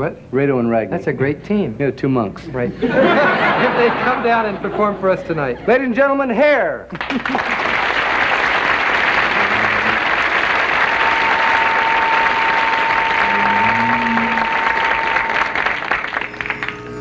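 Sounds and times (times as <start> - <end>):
studio audience applauding: 6.9 - 17.0
steady high tone: 9.4 - 17.0.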